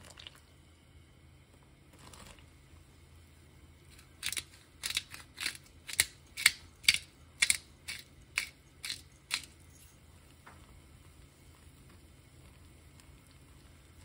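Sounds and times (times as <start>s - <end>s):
pepper mill grinding: 3.9s - 9.8s.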